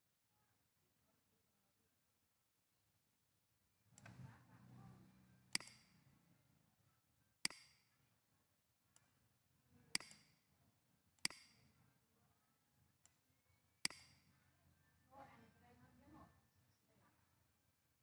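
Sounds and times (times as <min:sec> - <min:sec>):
computer mouse clicking: 0:05.5 - 0:06.0, 0:07.5 - 0:07.9, 0:10.0 - 0:10.4, 0:11.2 - 0:11.7, 0:13.9 - 0:14.3.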